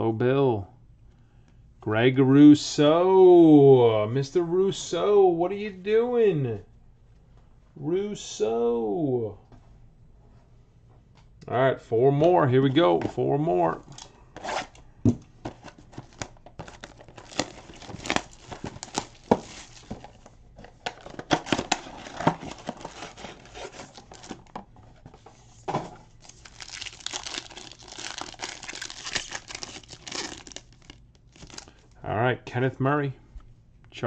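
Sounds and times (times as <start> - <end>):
foil pack crinkling: 15.8 - 20.3, 20.9 - 24.6, 26.1 - 31.9.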